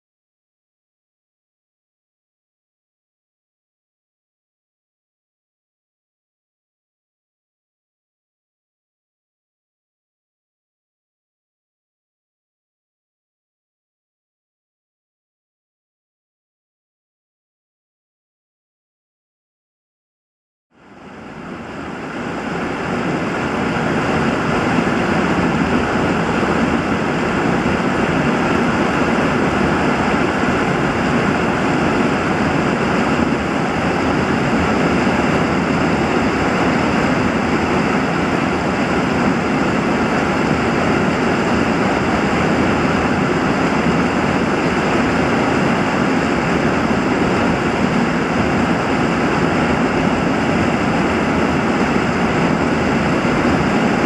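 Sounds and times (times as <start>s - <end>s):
rushing churning water: 20.8s - 54.0s.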